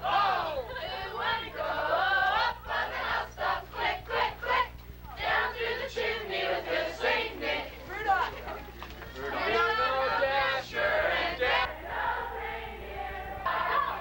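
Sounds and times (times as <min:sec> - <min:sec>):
teenagers singing a carol: 0:00.0 - 0:14.0.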